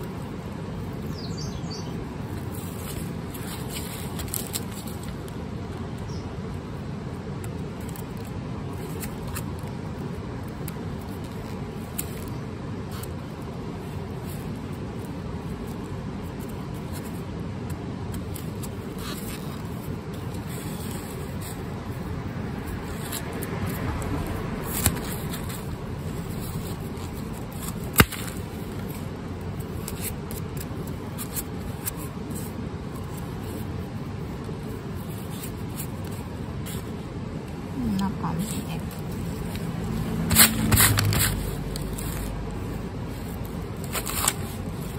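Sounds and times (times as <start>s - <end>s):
low outdoor rumble: 0.0s - 44.9s
garlic bulbs scraping and clicking: 40.3s - 42.4s.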